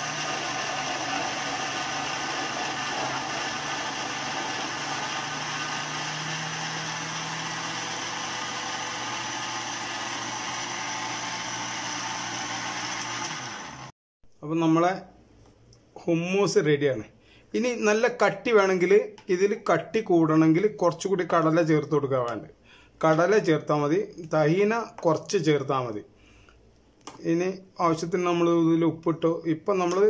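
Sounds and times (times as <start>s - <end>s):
mixer grinder motor running: 0.0s - 14.0s.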